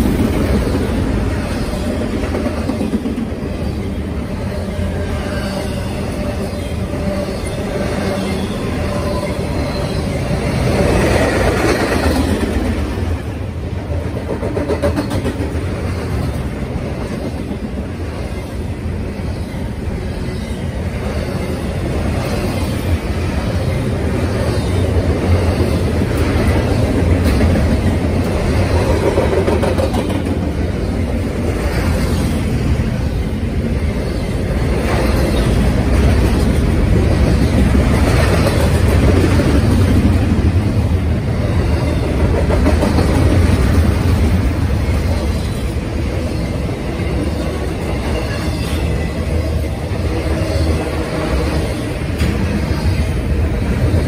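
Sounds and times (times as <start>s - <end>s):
freight train wheels on rails: 0.0s - 54.0s.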